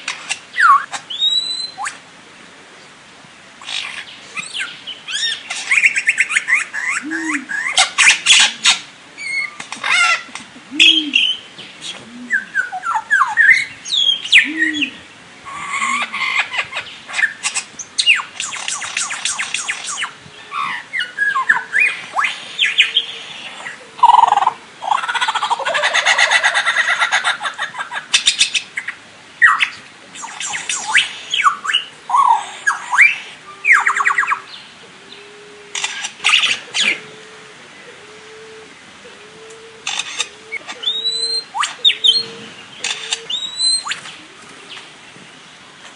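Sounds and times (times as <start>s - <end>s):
bird calling varied sounds: 0.0s - 2.0s, 3.6s - 44.9s.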